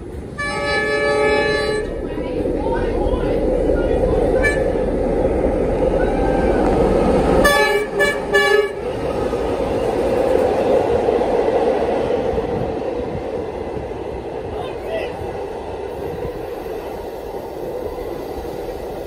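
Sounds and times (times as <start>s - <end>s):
diesel locomotive rumble: 0.0s - 19.0s
train carriages rolling past: 0.0s - 19.0s
train horn blasts: 0.4s - 2.0s, 4.4s - 4.9s, 7.4s - 8.8s.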